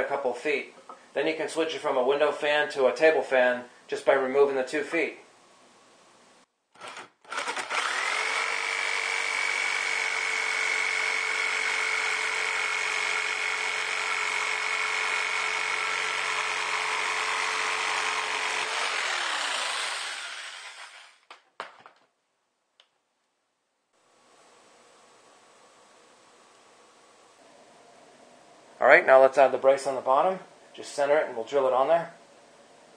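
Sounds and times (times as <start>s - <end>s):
jigsaw cutting wood: 6.8s - 21.3s.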